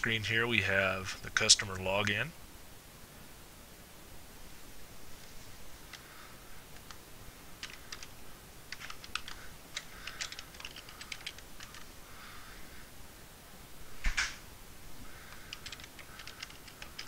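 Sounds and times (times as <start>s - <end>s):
computer keyboard typing: 7.6s - 11.9s, 15.3s - 17.0s.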